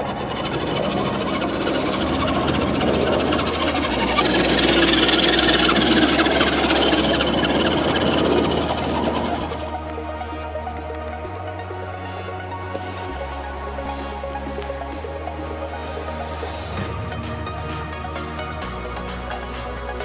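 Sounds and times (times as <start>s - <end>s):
toy truck motor whirring: 0.0s - 10.0s.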